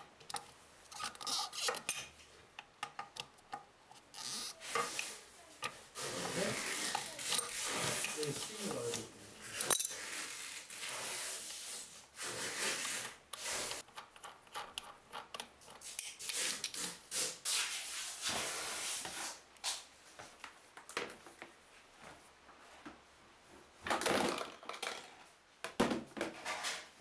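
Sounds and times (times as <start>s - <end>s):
plastic bolt rubbing and scraping: 0.3s - 1.9s.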